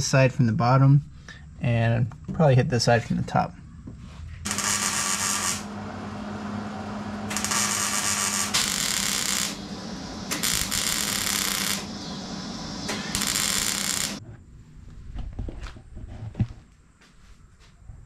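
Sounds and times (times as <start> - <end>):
welding arc crackling: 4.5 - 14.2.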